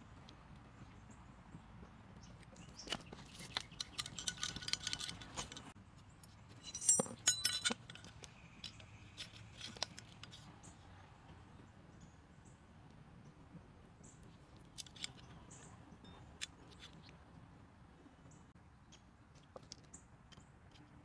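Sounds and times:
small metal clicks and scrapes: 2.4 - 10.9, 14.3 - 15.8, 16.4 - 17.2, 18.9 - 21.0
ringing metal clinks: 6.6 - 8.7.

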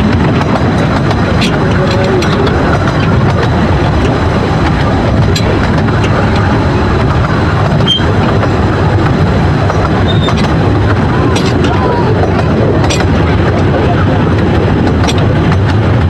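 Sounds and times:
sharp rail clicks: 0.0 - 16.0
train wheels rumbling on rail: 0.0 - 16.0.

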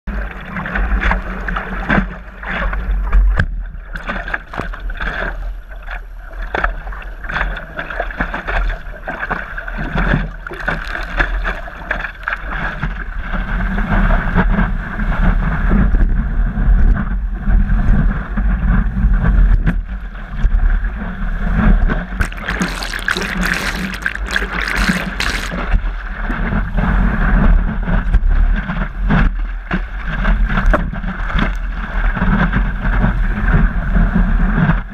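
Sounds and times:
water splashing against paddleboard: 7.4 - 13.0, 22.2 - 25.7.

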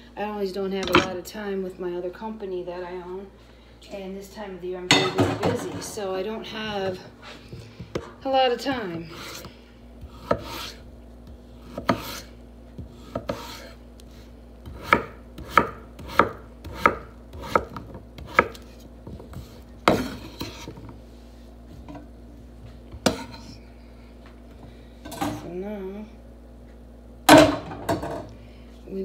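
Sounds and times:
knife chopping on wooden board: 9.1 - 13.8, 14.6 - 20.8.

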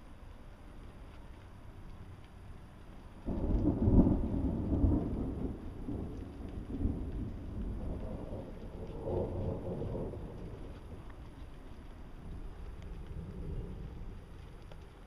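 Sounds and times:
thunder rumbling: 3.2 - 15.0.

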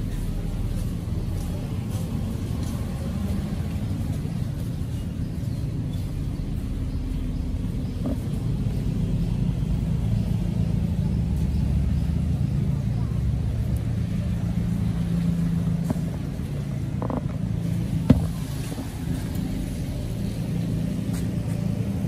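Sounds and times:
low rumble of street traffic: 0.0 - 22.0.

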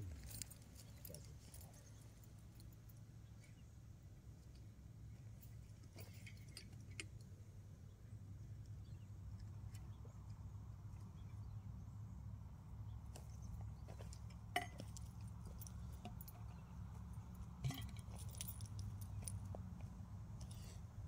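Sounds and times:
small metallic clinks: 5.3 - 7.3, 13.2 - 20.8.

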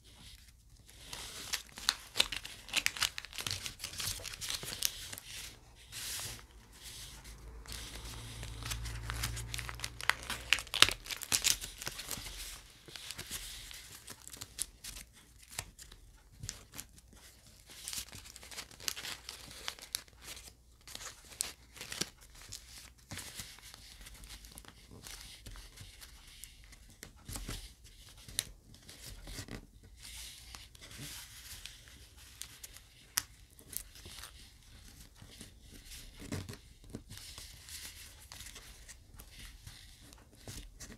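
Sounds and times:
paper rustling and crinkling: 0.0 - 40.9.

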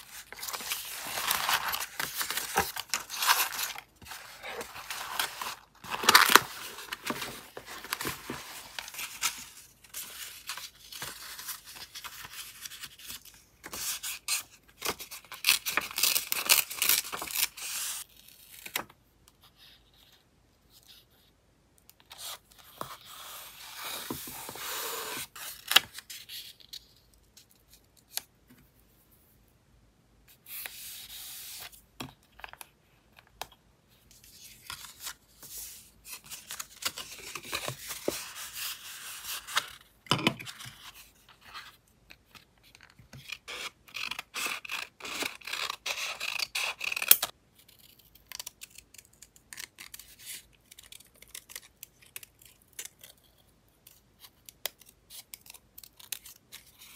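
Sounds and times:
paper and card rustling: 0.0 - 18.0.

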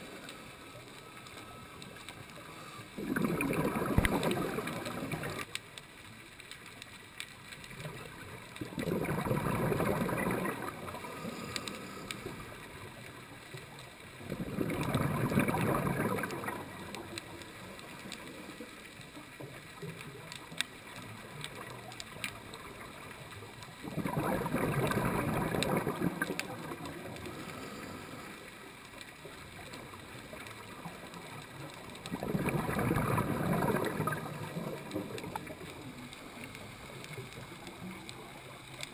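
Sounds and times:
faint crackling clicks: 0.0 - 38.9
exhaled bubbles from regulator: 2.8 - 5.5, 8.6 - 13.0, 14.2 - 18.8, 21.2 - 28.6, 30.6 - 38.9.

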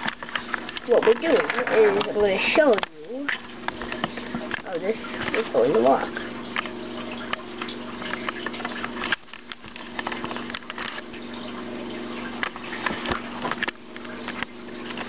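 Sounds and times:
rustling handling noise: 0.0 - 11.3.

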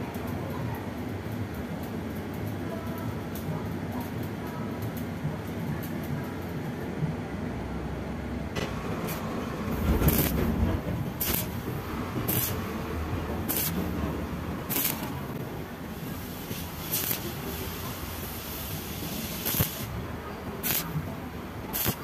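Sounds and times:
welding arc crackling: 8.6 - 22.0.

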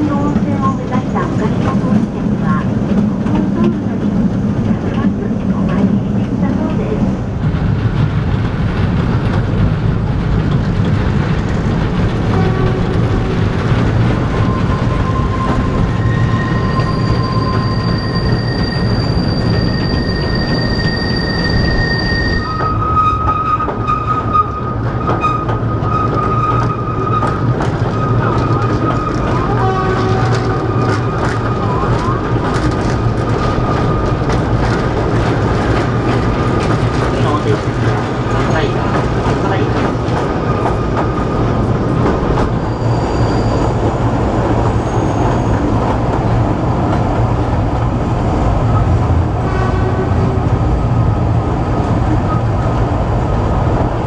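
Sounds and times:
train wheels rumbling on rails: 0.0 - 54.0
high wheel squeal: 14.3 - 32.2, 42.4 - 45.8.

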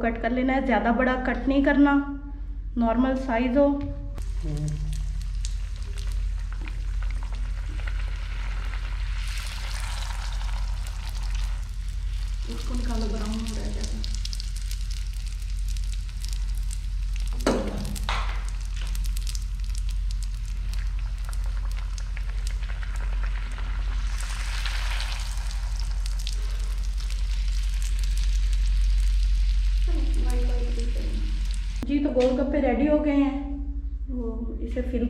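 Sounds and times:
food deep-frying in oil: 4.2 - 31.8.

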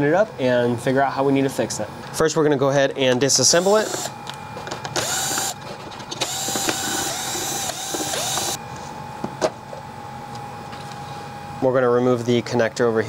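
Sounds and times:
cordless drill motor whining: 3.5 - 4.2, 5.0 - 5.6, 6.2 - 8.6.

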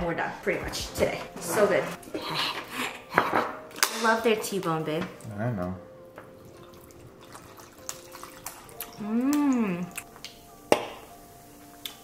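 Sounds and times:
person humming mmm: 8.8 - 10.3.

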